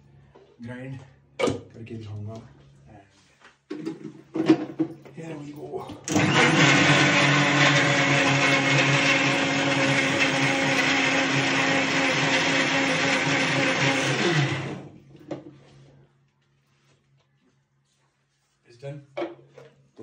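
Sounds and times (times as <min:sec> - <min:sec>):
mixer grinder motor whine: 0:06.0 - 0:15.0.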